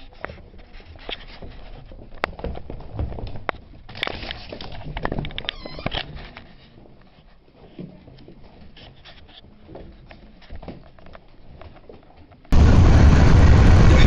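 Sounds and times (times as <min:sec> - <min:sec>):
puppies scuffling on wooden floor: 0:00.0 - 0:12.5
road noise: 0:12.6 - 0:14.0.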